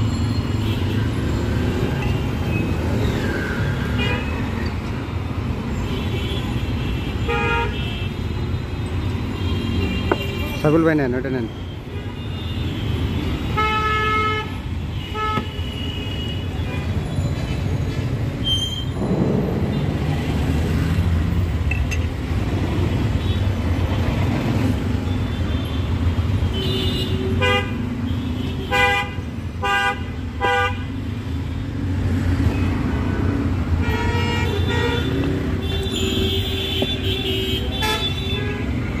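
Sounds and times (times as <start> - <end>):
rumble of passing vehicles: 0.0 - 39.0
vehicle horn honking: 33.8 - 38.6.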